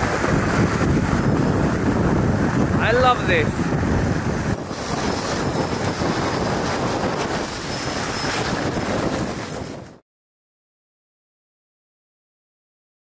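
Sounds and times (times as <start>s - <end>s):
sled rushing over snow: 0.0s - 10.0s
wind on microphone: 0.0s - 10.0s.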